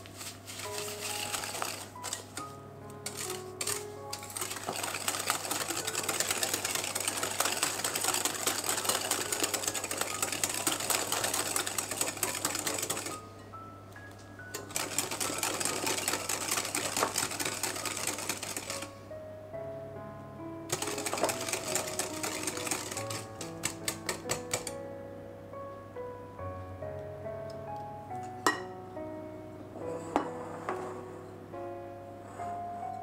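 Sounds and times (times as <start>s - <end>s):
whisk clicking against glass bowl: 3.1s - 13.2s, 14.6s - 18.8s, 20.7s - 24.7s.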